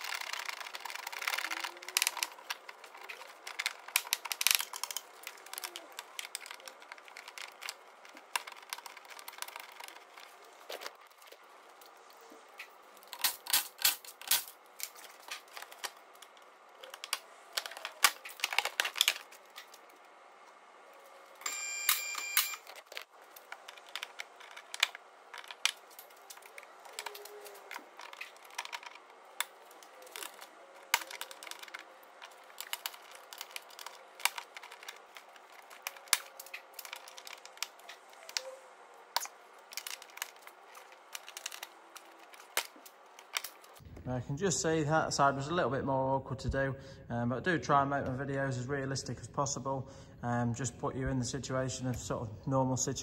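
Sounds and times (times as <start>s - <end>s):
plastic liner crackling: 0.0s - 20.0s, 22.8s - 43.8s.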